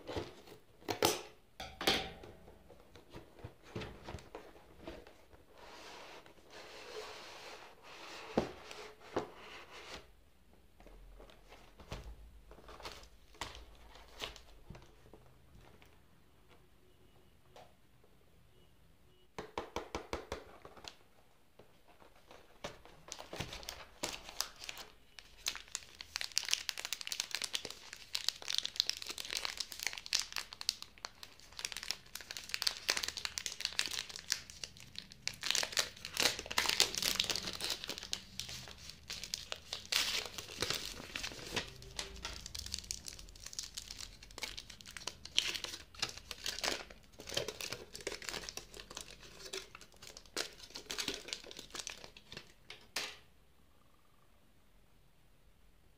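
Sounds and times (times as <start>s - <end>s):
wrapper and foil crinkling: 23.1s - 52.5s.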